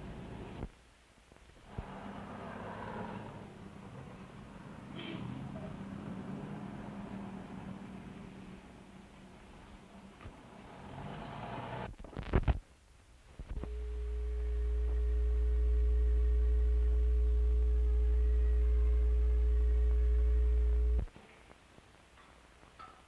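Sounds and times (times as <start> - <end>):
noise burst: 0.0 - 5.2, 10.8 - 21.2
faint fixed tones: 13.5 - 21.1
loud steady low hum: 13.5 - 21.1.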